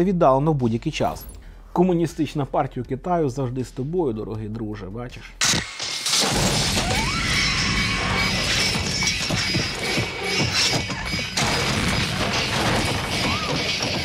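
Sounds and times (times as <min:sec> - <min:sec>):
film music: 0:05.4 - 0:14.0
crashing and smashing: 0:06.1 - 0:14.0
mechanical clatter: 0:08.4 - 0:14.0.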